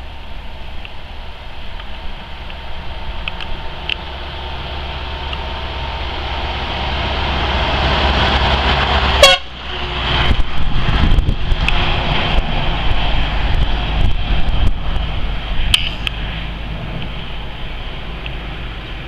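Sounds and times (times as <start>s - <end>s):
truck passing by: 2.0s - 19.0s
truck horn toot: 9.2s - 10.1s.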